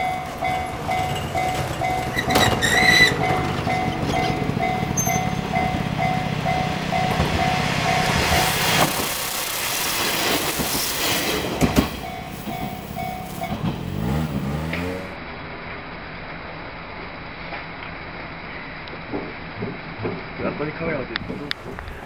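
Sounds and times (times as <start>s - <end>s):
wheels clacking on track: 0.0s - 15.2s, 21.2s - 22.0s
diesel railcar engine: 0.0s - 22.0s
repeating ding: 3.7s - 8.1s.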